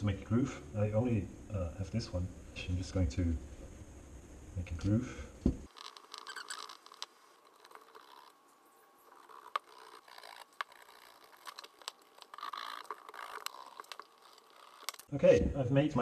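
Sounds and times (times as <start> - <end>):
groover scraping leather: 5.7 - 8.4, 9.0 - 15.1.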